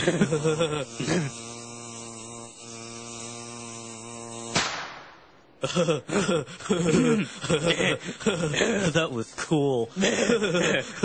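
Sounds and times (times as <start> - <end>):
firecracker bang: 4.5 - 5.3.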